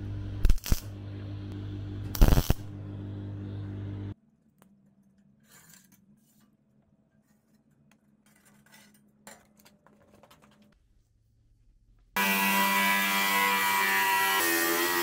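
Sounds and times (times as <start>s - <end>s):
faint metal scraping: 5.1s - 9.6s.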